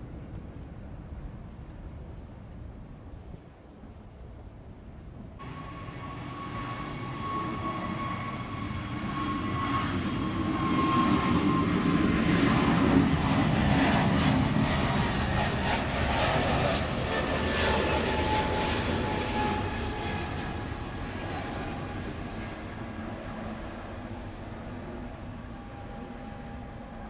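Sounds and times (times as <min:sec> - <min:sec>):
thin engine whine: 0:05.4 - 0:21.6
jet airliner taking off: 0:05.4 - 0:27.0.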